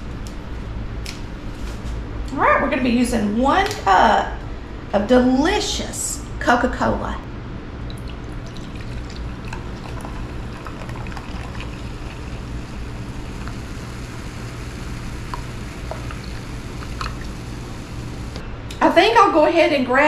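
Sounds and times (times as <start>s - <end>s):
carbonation fizzing: 7.9s - 18.4s
liquid pouring into a cup: 7.9s - 18.4s.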